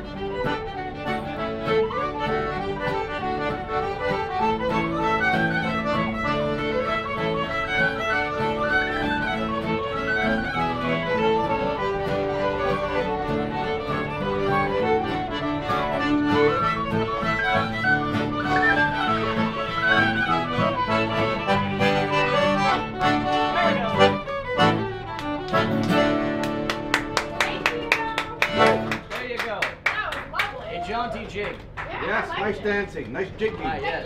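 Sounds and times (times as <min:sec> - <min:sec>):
strummed acoustic guitar: 0:00.0 - 0:29.1
accordion: 0:00.0 - 0:29.2
fiddle melody: 0:00.0 - 0:29.2
whistle playing: 0:03.8 - 0:23.5.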